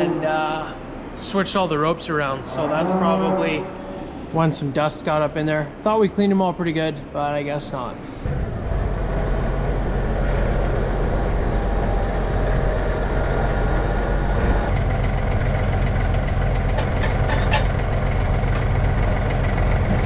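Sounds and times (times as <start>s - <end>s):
tractor diesel engine running: 7.6s - 20.0s.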